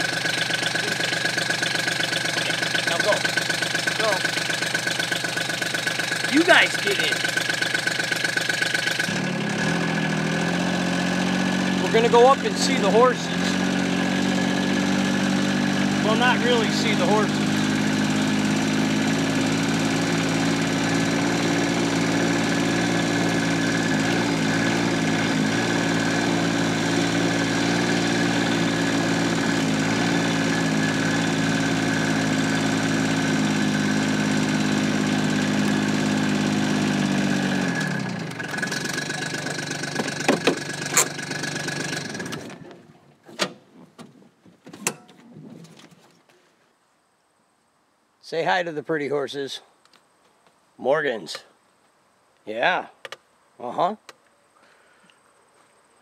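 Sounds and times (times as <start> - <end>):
utility vehicle engine running: 0.0 - 43.6.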